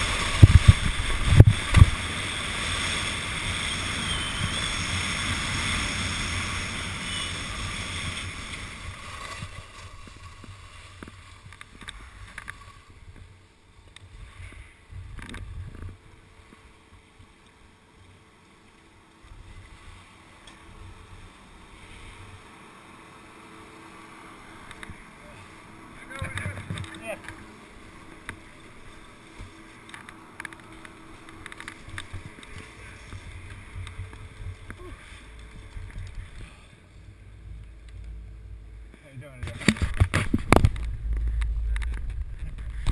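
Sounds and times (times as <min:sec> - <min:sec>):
skis hissing over snow: 0:00.0 - 0:13.0, 0:27.0 - 0:37.1
wind buffeting camera: 0:00.0 - 0:13.3, 0:26.2 - 0:42.9
ski and pole clicks and knocks: 0:29.4 - 0:34.8.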